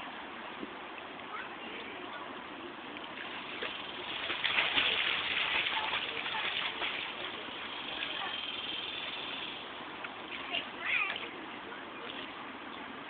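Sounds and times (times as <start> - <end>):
swimmer splashing pool water: 2.8 - 12.5.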